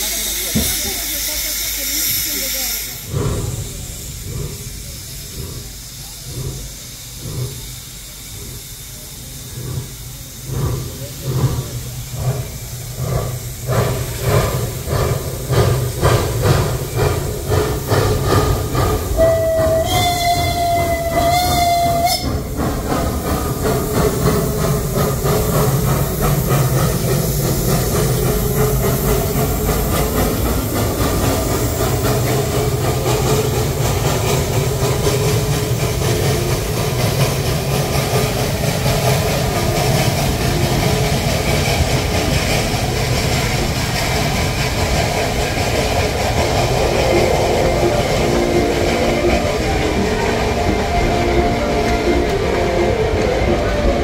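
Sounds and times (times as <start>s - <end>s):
steam locomotive chuffing: 0.0s - 54.0s
steam whistle: 19.1s - 22.5s.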